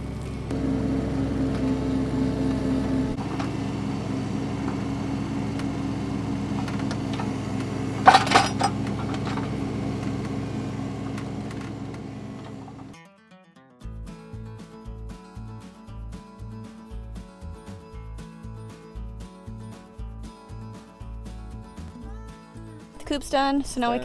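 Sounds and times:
diesel engine running: 0.0 - 13.0
bucket pushing dirt and rocks: 3.2 - 12.9
clatter of rocks and metal: 6.5 - 10.1.

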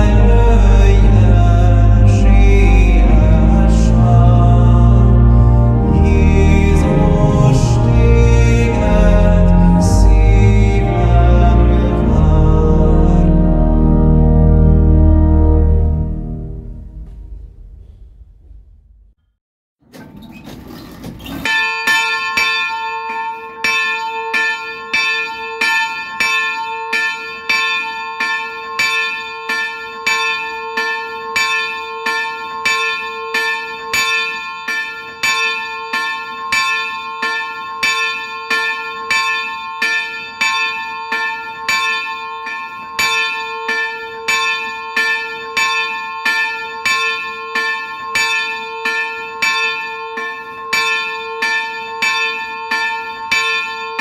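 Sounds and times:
church bell ringing: 0.0 - 18.2, 21.4 - 54.0.

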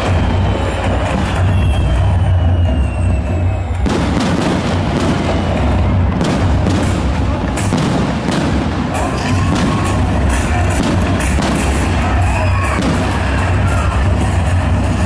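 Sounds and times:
firework shells booming: 0.0 - 14.1
firework pops and crackles: 1.0 - 9.9, 10.7 - 11.9.

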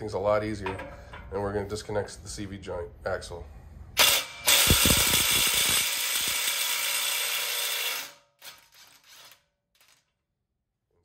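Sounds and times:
impact wrench hammering: 4.0 - 8.6.

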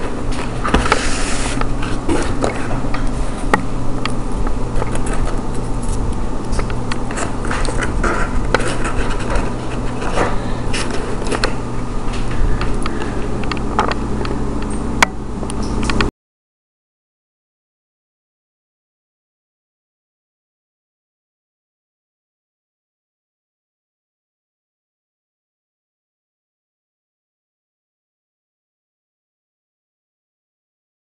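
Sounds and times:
low hum: 0.0 - 16.1
handling scrapes and clicks: 4.7 - 14.8.

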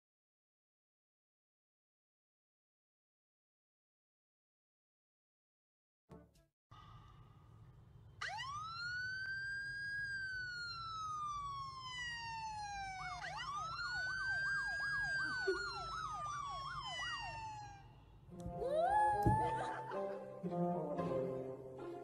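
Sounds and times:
recorded siren wail and yelp: 8.2 - 18.0, 18.6 - 20.0.

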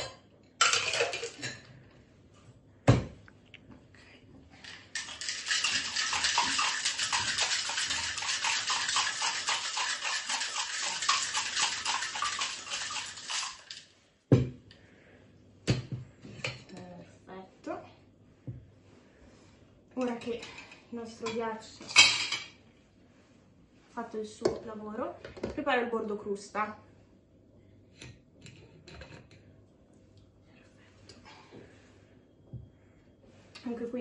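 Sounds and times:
ice rattling in metal shaker: 0.6 - 1.5, 4.6 - 14.0
juice pouring into metal shaker: 4.6 - 14.0.

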